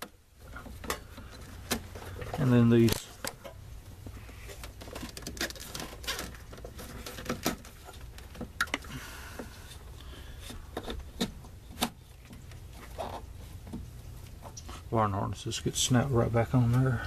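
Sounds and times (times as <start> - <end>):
plastic loom rustling: 4.2 - 8.7.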